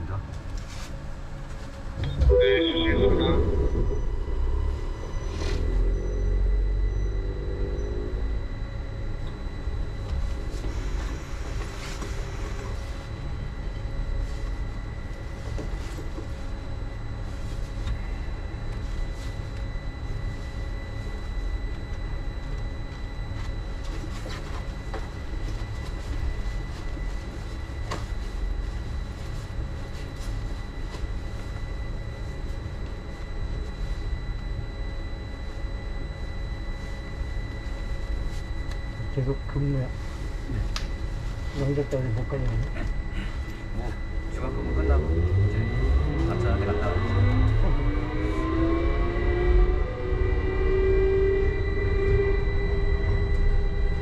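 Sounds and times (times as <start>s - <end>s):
train low rumble: 0.0s - 54.0s
train motor whine: 2.0s - 13.9s, 41.6s - 54.0s.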